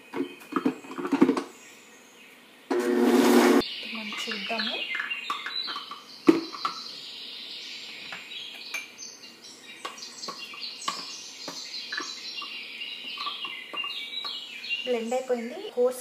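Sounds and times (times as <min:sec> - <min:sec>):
birds calling: 0:03.6 - 0:15.8.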